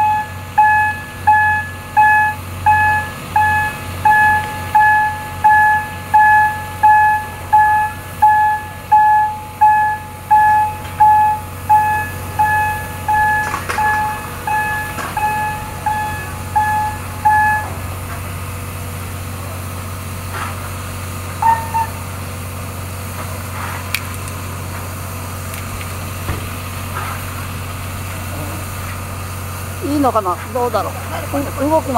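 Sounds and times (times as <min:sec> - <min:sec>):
warning beeper beeping: 0:00.0 - 0:18.1, 0:21.4 - 0:22.0
steady low hum: 0:00.0 - 0:31.9.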